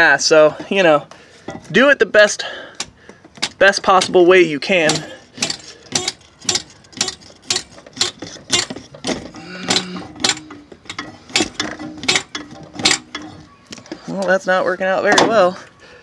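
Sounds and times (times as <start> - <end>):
hammer tapping metal drill bit: 4.9 - 8.8, 9.7 - 13.2.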